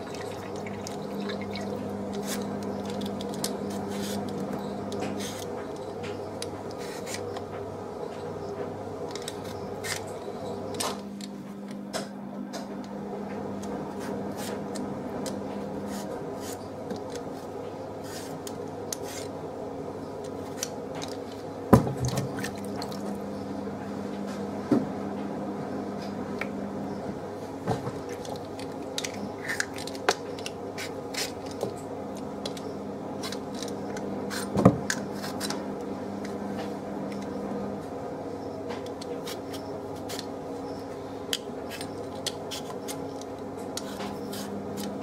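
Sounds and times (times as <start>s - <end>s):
steady low hum: 0.0s - 45.0s
potato peeler scraping: 18.0s - 19.4s, 28.2s - 31.6s, 32.4s - 35.6s, 38.9s - 40.3s, 41.3s - 45.0s.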